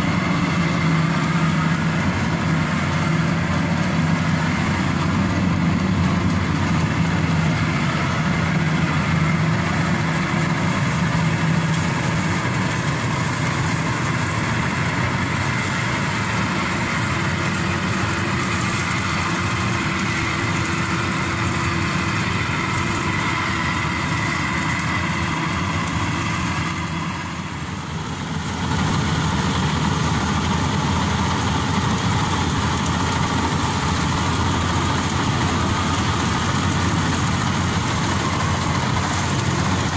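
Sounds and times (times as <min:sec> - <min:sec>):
combine harvester droning: 0:00.0 - 0:39.9.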